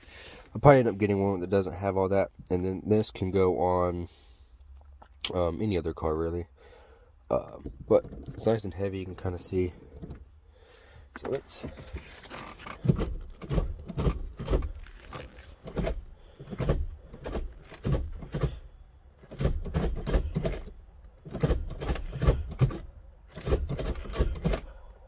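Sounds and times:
gear lever clunking and clicking: 7.4 - 10.4, 11.0 - 25.0.

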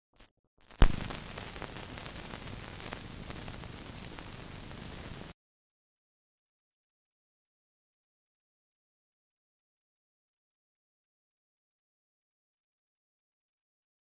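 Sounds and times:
film soundtrack hiss and crackles: 0.7 - 5.3
sharp pop: 0.8 - 5.3.

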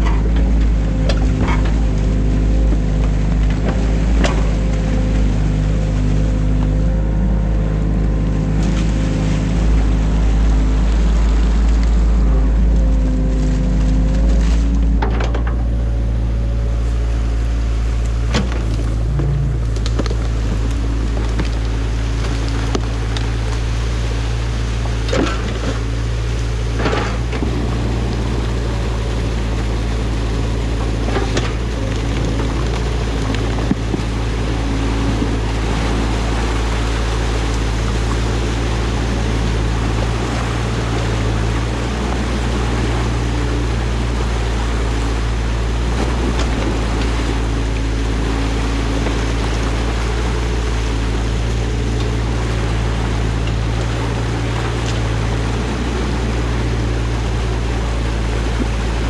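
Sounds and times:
knocks and clunks: 0.0 - 5.6, 11.6 - 16.1, 18.0 - 23.0, 26.7 - 28.7
excavator diesel engine running: 0.0 - 59.0.

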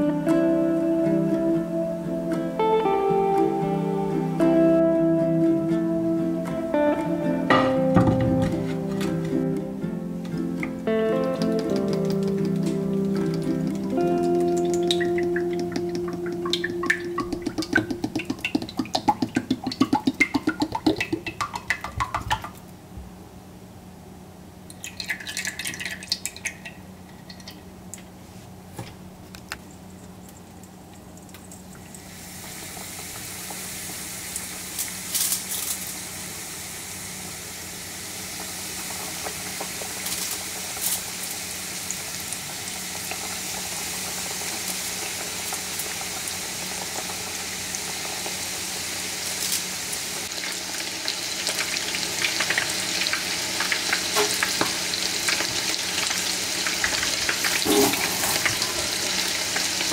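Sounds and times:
oil popping: 10.2 - 22.6, 24.7 - 28.1, 50.2 - 59.9
fish deep-frying in oil: 11.3 - 22.5, 24.6 - 28.0, 29.7 - 59.9.

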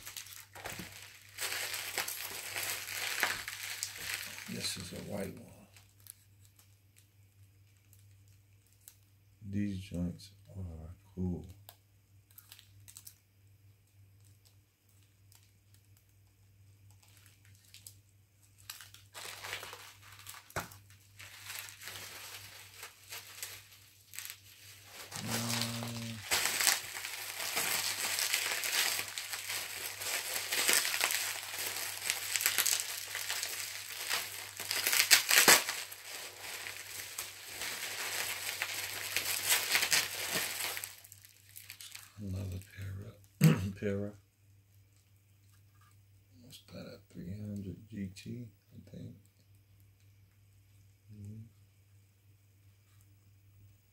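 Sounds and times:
plastic packaging crinkling: 0.0 - 7.1, 12.3 - 13.2, 16.8 - 42.9.

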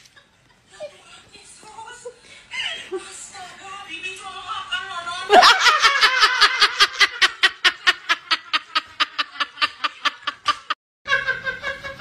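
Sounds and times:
rapid rhythmic laughter: 5.3 - 12.0.

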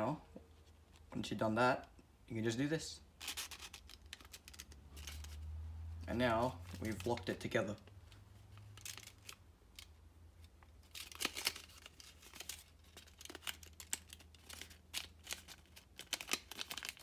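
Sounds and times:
paper crinkling and crackling: 3.2 - 5.5, 6.6 - 17.0.

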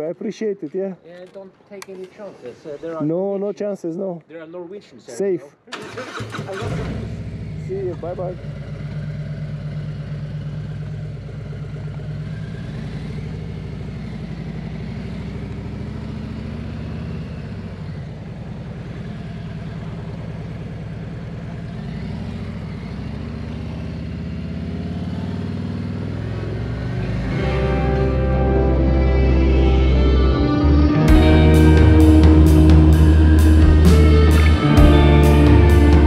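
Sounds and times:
motorcycle engine pulling away: 5.7 - 36.0.

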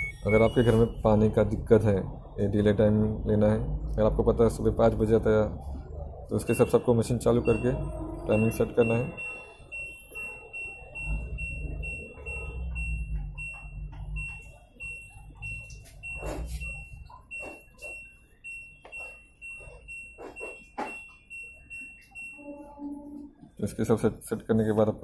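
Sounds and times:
short high beeps: 0.0 - 1.0.

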